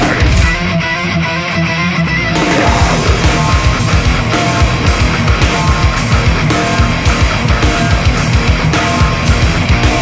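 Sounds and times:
heavy metal band playing: 0.0s - 10.0s
rapid kick drum beat: 2.4s - 10.0s.

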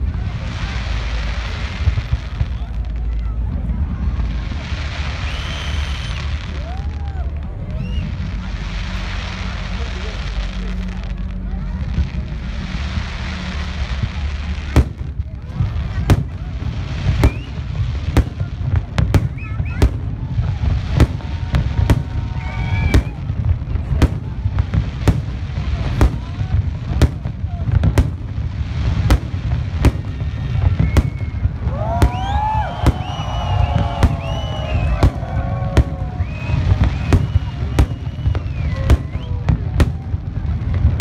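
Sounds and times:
deep rumble of firework bursts: 0.0s - 41.0s
sharp firework bangs: 14.7s - 41.0s.

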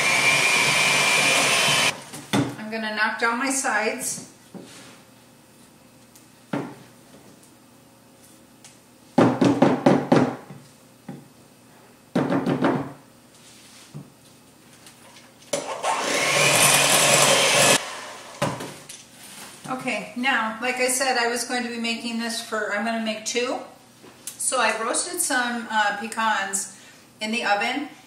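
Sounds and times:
electric hand mixer running: 0.0s - 2.0s, 15.6s - 18.5s.

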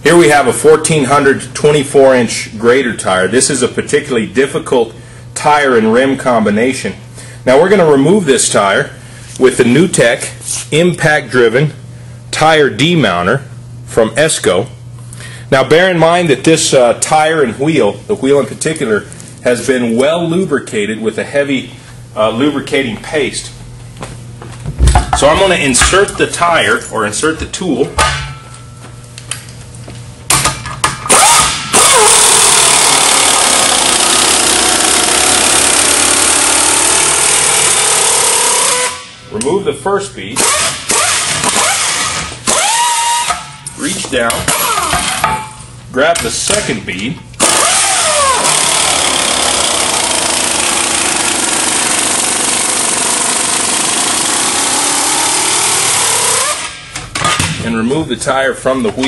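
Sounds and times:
pneumatic impact wrench: 30.3s - 39.2s, 40.4s - 43.6s, 44.5s - 45.3s, 47.4s - 57.4s.

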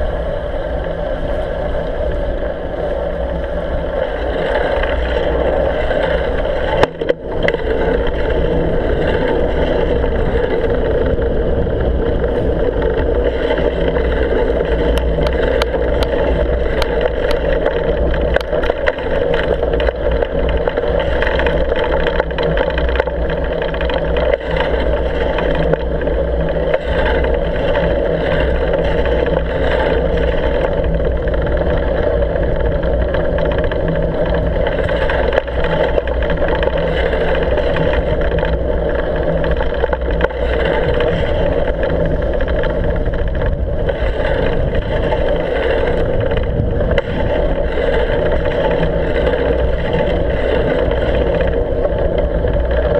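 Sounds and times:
riding noise drone: 0.0s - 52.9s.

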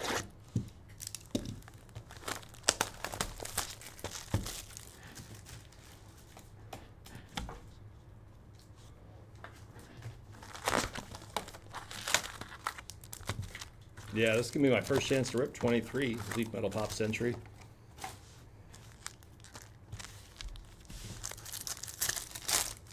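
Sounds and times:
plastic shrink-wrap crinkling: 0.9s - 6.0s, 10.3s - 17.4s, 18.7s - 22.9s.

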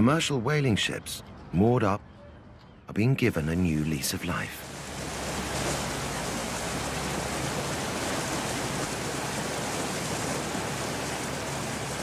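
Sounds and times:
water rushing in boat wake: 4.6s - 12.0s.

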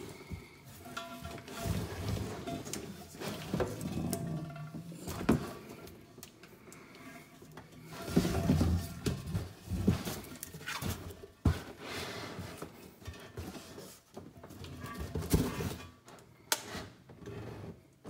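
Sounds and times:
cardboard scraping and rustling: 7.8s - 12.6s.

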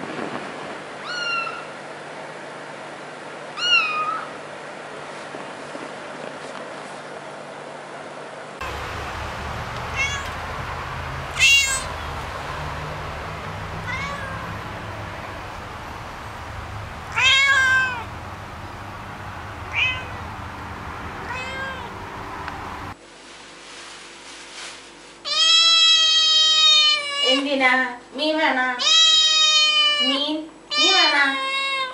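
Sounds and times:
low background hum and hiss: 0.0s - 31.9s
kitten meowing: 1.0s - 1.7s, 3.6s - 4.3s, 9.8s - 10.5s, 11.3s - 12.3s, 13.0s - 15.4s, 16.4s - 18.1s, 19.6s - 20.2s, 21.2s - 21.9s, 25.3s - 27.4s, 28.8s - 30.1s.

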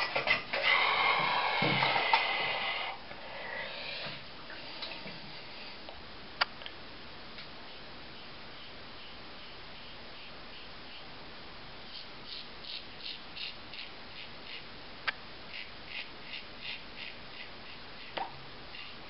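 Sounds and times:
razor scratching through stubble: 15.5s - 19.0s.

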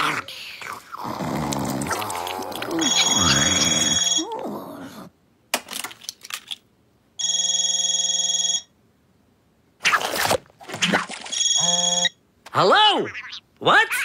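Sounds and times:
electronic toy phone ringtone: 2.8s - 4.2s, 11.4s - 12.2s.

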